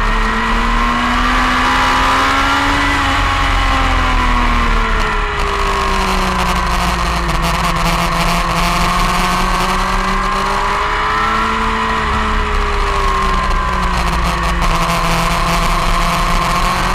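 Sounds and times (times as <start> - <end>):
motorcycle engine running: 0.0 - 16.9.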